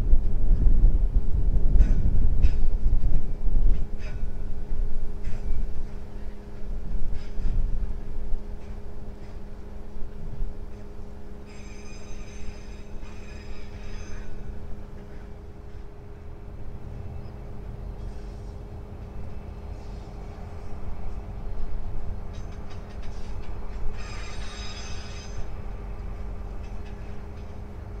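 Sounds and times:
diesel locomotive engine rumble: 0.0 - 28.0
high-pitched squeals: 11.4 - 14.6, 23.9 - 25.6.

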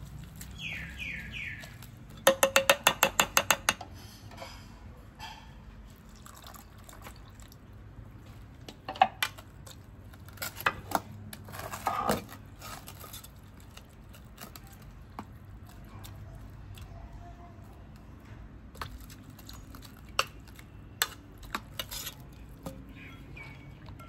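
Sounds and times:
spoon squelching in wet paste: 18.8 - 24.0.

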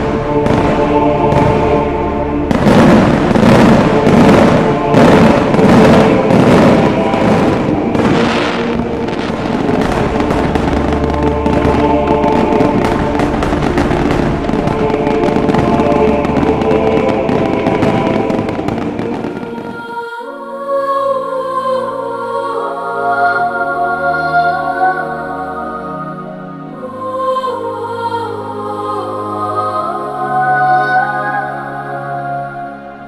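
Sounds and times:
firework bangs: 0.0 - 1.9, 2.5 - 20.0
fireworks crackling: 0.0 - 1.9, 2.5 - 20.0
music: 0.0 - 33.0.

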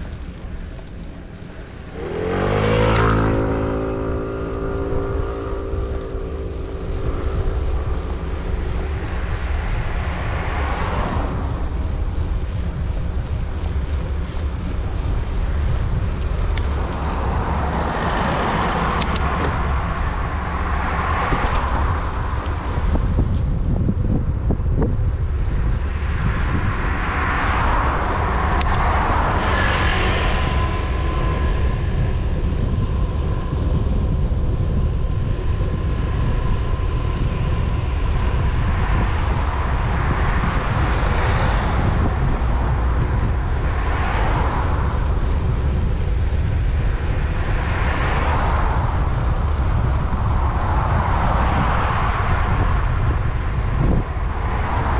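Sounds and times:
wind rumble on microphone: 0.0 - 54.9
cars swishing past: 1.0 - 12.2, 25.4 - 33.5, 35.7 - 54.9.

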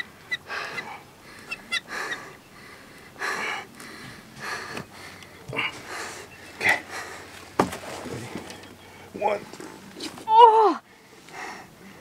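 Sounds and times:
person breathing hard: 0.4 - 7.3.

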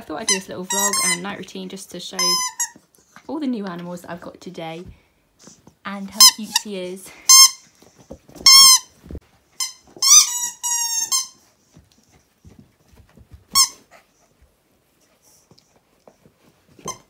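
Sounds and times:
squeaky dog toy squeaking: 0.3 - 1.3, 2.2 - 2.8, 7.3 - 7.7, 8.4 - 8.9, 9.6 - 11.4, 13.5 - 13.8.

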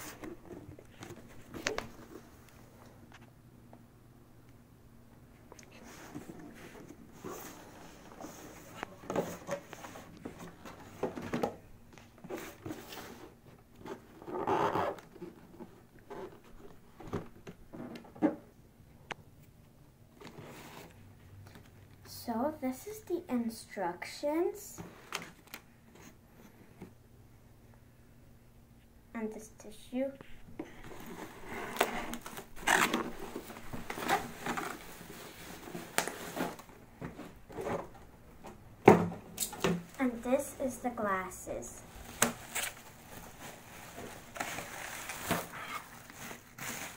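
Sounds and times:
bubble wrap crinkling: 30.8 - 36.7, 41.9 - 46.9.

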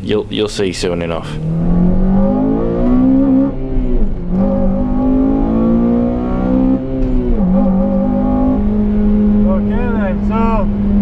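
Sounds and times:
car engine accelerating: 1.0 - 11.0.

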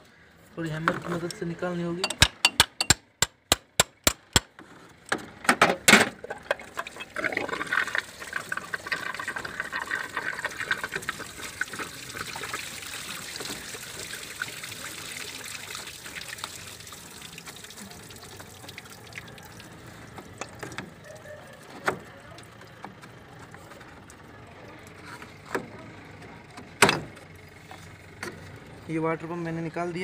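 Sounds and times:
hammer tapping on metal: 2.0 - 4.5
coolant pouring and trickling: 6.1 - 23.0.

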